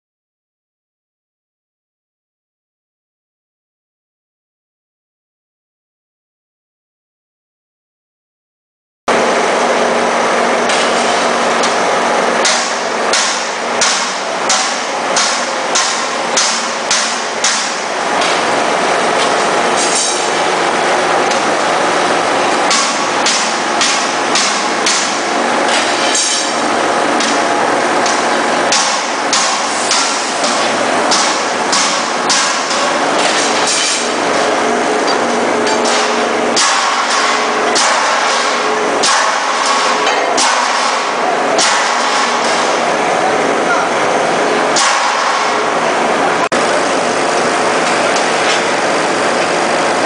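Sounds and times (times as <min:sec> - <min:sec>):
sharp metallic clanks: 0:22.7 - 0:27.4.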